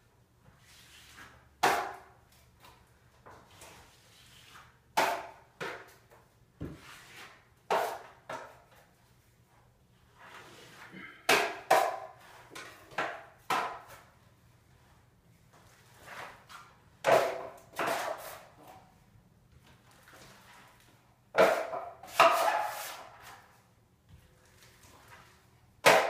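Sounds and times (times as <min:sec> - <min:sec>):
drywall tool strokes on wall: 0:00.4 - 0:01.5, 0:03.4 - 0:05.3, 0:06.7 - 0:08.2, 0:15.6 - 0:18.8, 0:20.1 - 0:23.6.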